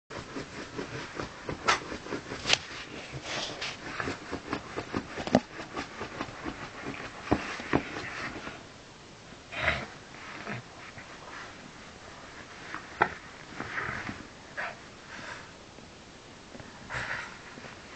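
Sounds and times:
dog snuffling: 0.2s - 8.6s.

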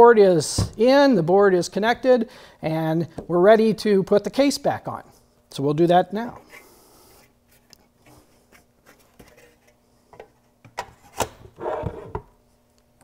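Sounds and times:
metal cover scraping slide: 10.9s - 12.2s.

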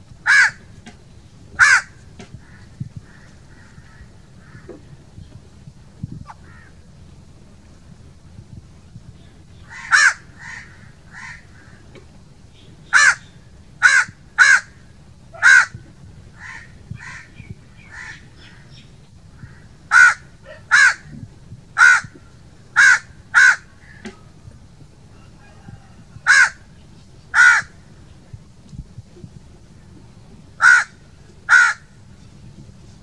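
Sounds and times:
crow cawing: 0.2s - 0.6s, 1.6s - 4.8s, 6.3s - 6.8s, 9.7s - 11.9s, 12.9s - 13.2s, 13.8s - 14.8s, 15.4s - 15.8s, 16.4s - 18.7s, 19.4s - 21.1s, 21.8s - 22.2s, 22.8s - 24.1s, 26.2s - 26.6s, 27.3s - 27.8s, 30.6s - 31.9s.

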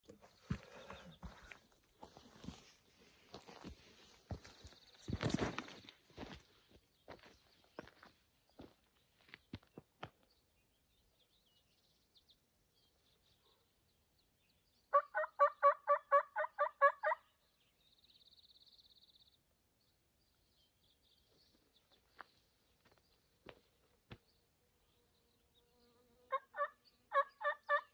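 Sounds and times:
footsteps on dirt trail: 0.1s - 10.3s, 21.2s - 24.4s.

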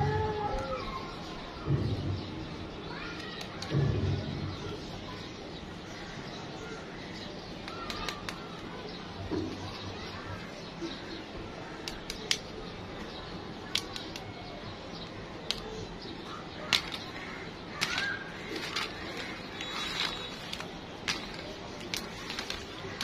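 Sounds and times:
fingers clicking plastic eggs: 11.8s - 12.5s, 13.6s - 14.3s, 15.4s - 15.7s.

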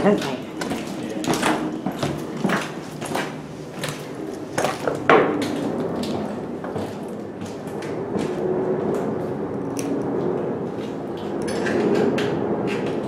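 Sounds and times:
footsteps crunching on broken glass: 0.2s - 8.4s.

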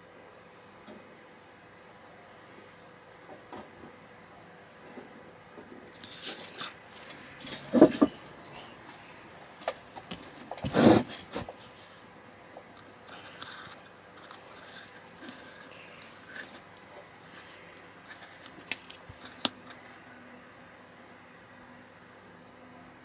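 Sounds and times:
plastic model handling rustles: 5.9s - 8.2s, 12.9s - 19.7s.

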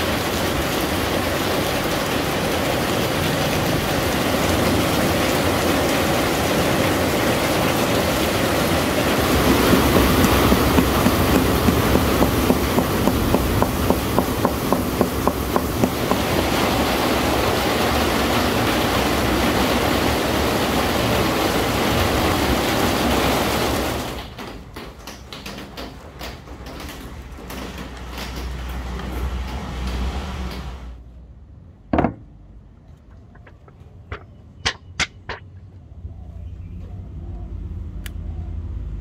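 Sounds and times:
knocks: 9.4s - 16.2s, 24.2s - 28.7s, 31.9s - 32.3s, 33.3s - 35.6s.

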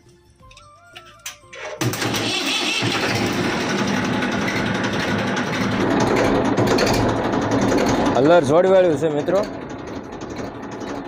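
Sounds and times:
tractor diesel engine: 0.0s - 11.0s.

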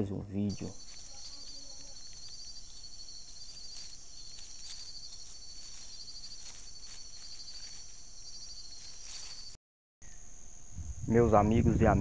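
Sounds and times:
crickets chirping: 0.4s - 12.0s
insect pulsing trill: 0.4s - 12.0s
rustling in dry leaf litter: 0.5s - 9.6s.

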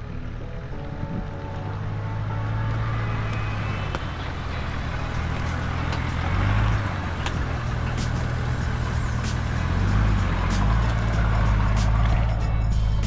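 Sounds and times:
truck engine running low: 0.0s - 13.0s
clicks and cracks under tyres: 3.2s - 8.4s.

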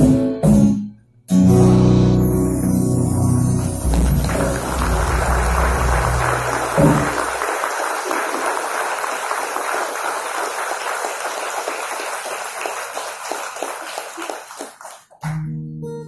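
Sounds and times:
audience applauding: 3.8s - 15.4s.

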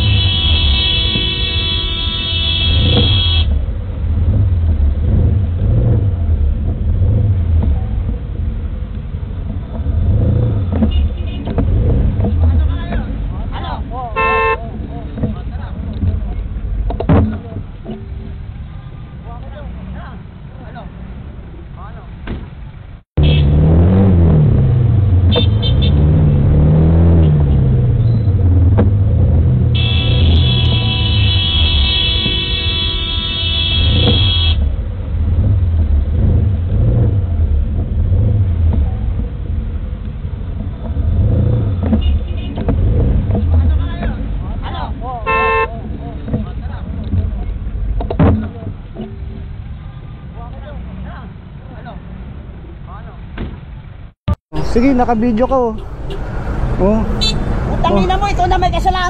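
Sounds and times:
vehicle engine and road noise: 0.0s - 59.0s.

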